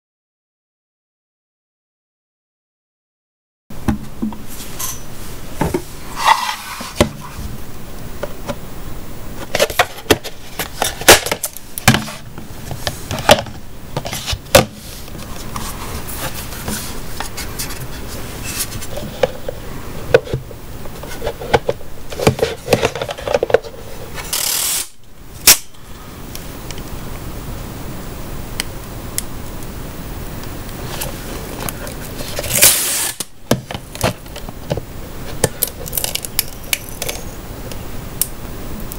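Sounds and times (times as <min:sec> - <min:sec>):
plastic rubbing and knocking on wood: 0:09.4 - 0:23.8.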